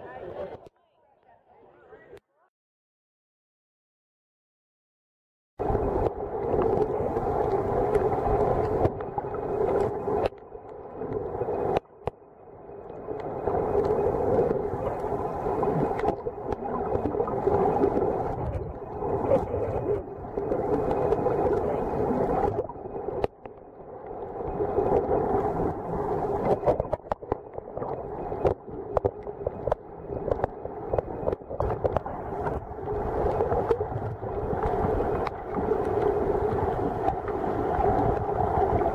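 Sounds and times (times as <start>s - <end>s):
muffled underwater rush: 5.6s - 38.9s.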